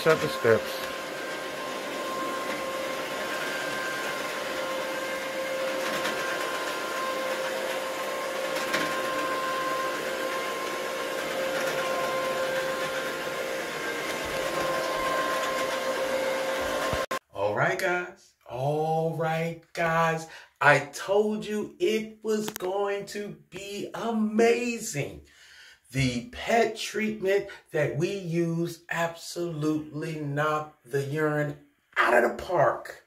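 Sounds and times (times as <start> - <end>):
carpet cleaner motor whine: 0.0 - 17.2.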